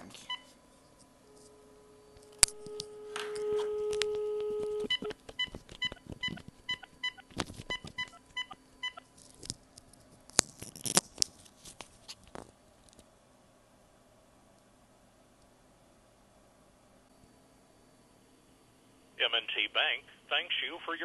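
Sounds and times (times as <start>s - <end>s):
dial tone: 2.6s - 7.2s.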